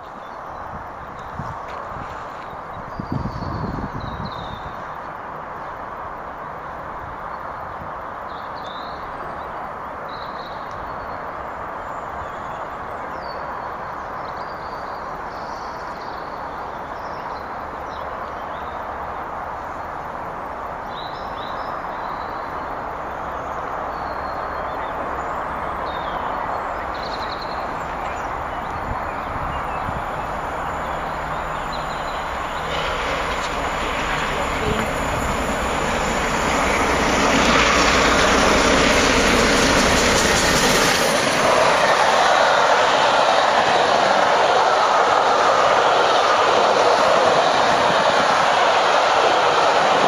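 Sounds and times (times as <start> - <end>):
steam locomotive rushing past: 15.1 - 50.0
birds chirping: 23.3 - 49.9.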